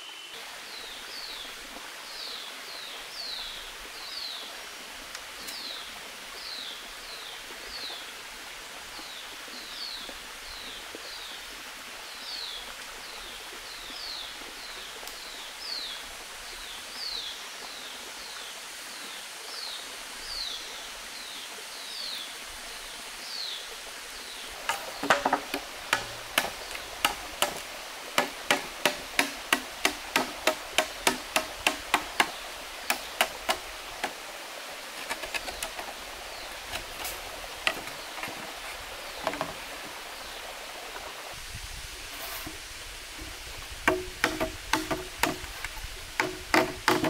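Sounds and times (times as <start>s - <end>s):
waterfall rushing: 22.0s - 47.0s
machete chopping bamboo: 24.6s - 34.2s, 43.9s - 45.5s, 46.2s - 47.0s.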